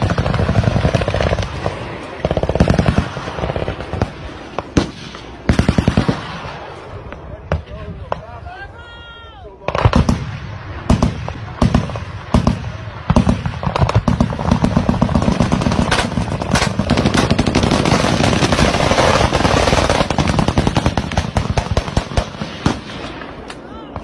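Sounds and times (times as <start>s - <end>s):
automatic gunfire: 9.7s - 23.0s.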